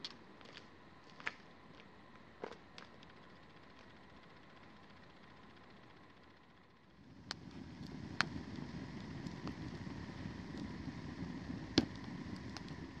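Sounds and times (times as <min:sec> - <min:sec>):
burning wood crackling and popping: 0:06.9 - 0:13.0
campfire flames rushing: 0:06.9 - 0:13.0.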